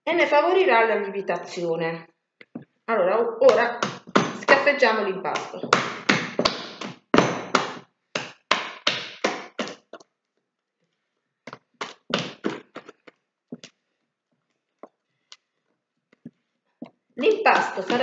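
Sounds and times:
dough slapped by hand: 5.4s - 9.9s.

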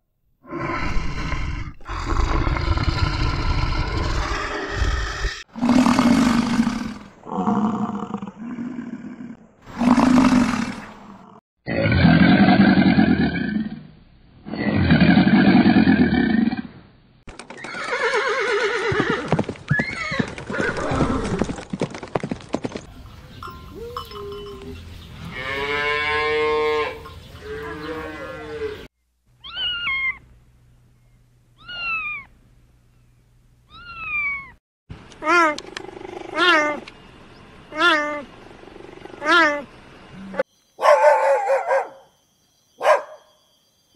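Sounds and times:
alligator bellowing: 0.5s - 13.9s, 35.2s - 36.8s
cow mooing: 25.3s - 28.9s.

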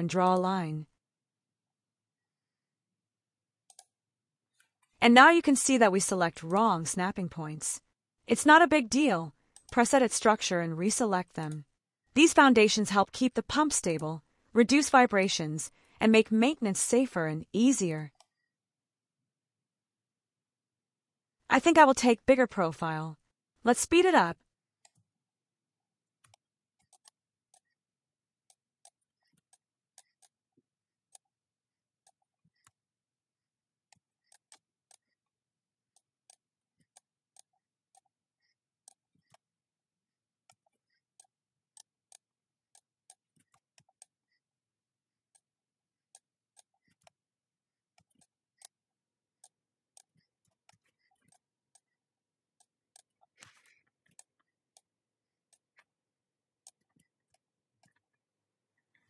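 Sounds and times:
computer mouse clicks: 11.2s - 11.6s, 13.2s - 14.1s, 26.2s - 27.8s, 52.6s - 54.9s.

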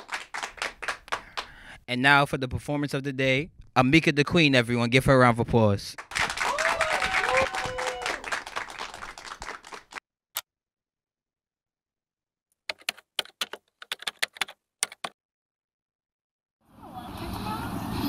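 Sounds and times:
audience applauding: 0.0s - 1.6s, 6.0s - 10.0s
computer keyboard typing: 12.7s - 15.2s.

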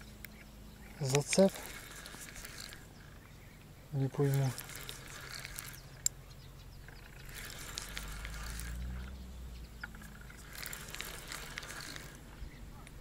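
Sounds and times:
low hum: 0.0s - 13.0s
spinning reel clicking: 0.9s - 3.2s, 4.0s - 6.2s, 6.8s - 9.2s, 9.8s - 13.0s.

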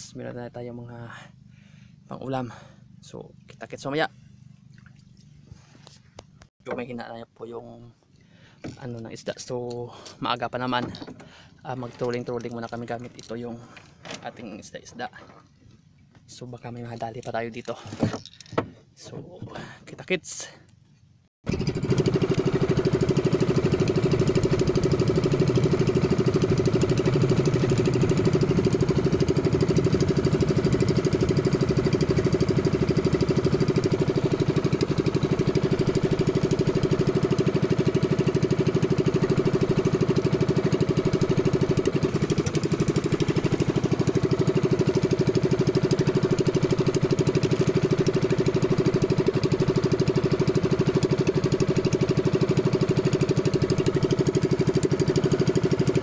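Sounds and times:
boat engine running: 8.6s - 17.9s, 21.4s - 56.0s.

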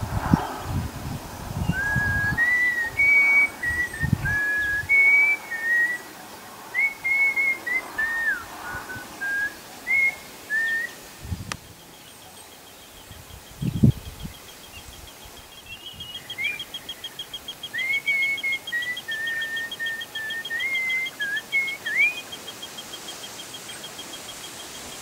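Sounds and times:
person whistling a tune: 1.7s - 6.0s, 6.8s - 11.0s.

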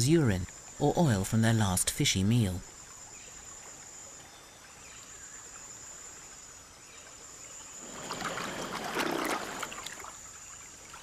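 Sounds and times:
water splashing: 7.8s - 11.0s.

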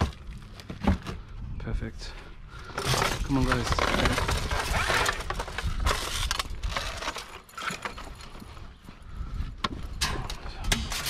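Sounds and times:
wooden planks knocking and scraping: 0.0s - 1.3s, 2.7s - 8.5s.

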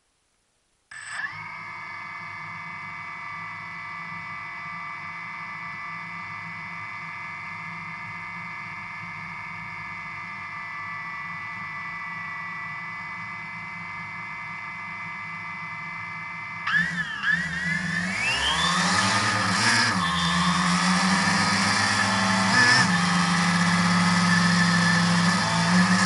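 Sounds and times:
drone propellers whining: 8.7s - 26.0s.

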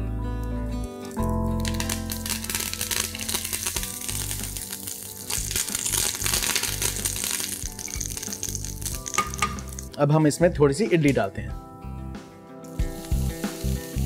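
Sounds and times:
background music: 0.0s - 14.0s
seeds crackling in hot oil: 0.9s - 10.0s, 12.7s - 14.0s.

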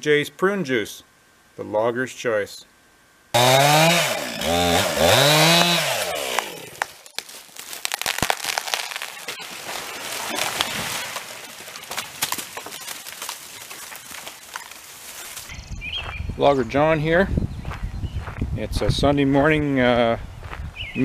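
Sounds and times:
chainsaw revving: 3.4s - 7.1s
wood cracking and snapping: 5.0s - 15.5s.

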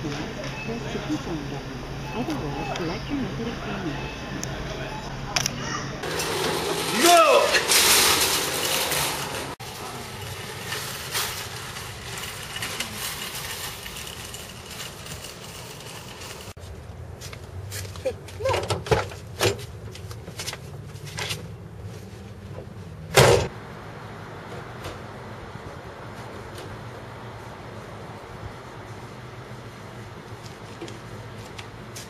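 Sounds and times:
outdoor background noise: 0.0s - 32.0s.

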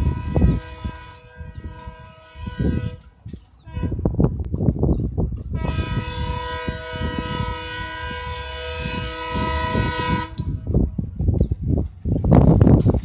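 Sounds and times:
locomotive horn blast: 0.0s - 4.1s, 5.5s - 10.8s.

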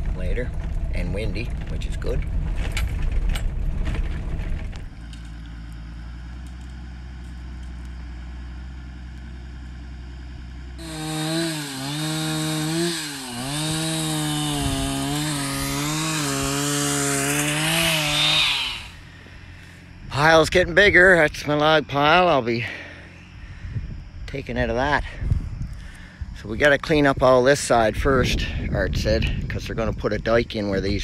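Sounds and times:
chainsaw idling and cutting: 4.8s - 20.0s.

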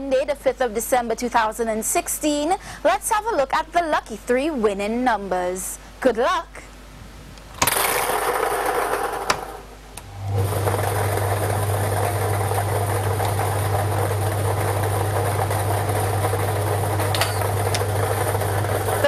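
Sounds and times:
machine motor humming: 7.6s - 19.0s
lottery balls mixing: 10.3s - 19.0s.

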